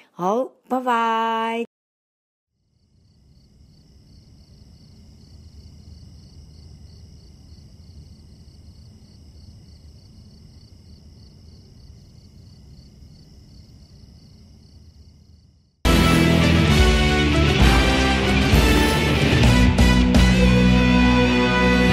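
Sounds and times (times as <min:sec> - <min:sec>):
crickets chirping: 0:02.6 - 0:15.8.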